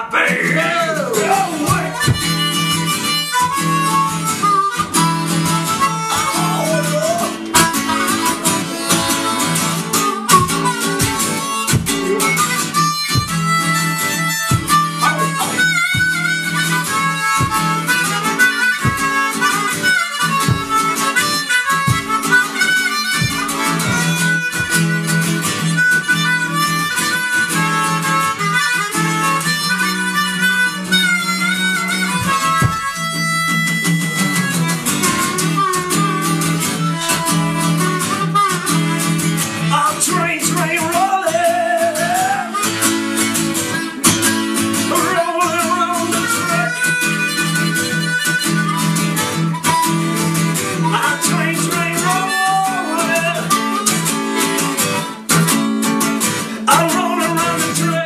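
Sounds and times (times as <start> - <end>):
blues harmonica solo: 0.0 - 58.0
strummed acoustic guitar: 0.0 - 58.0.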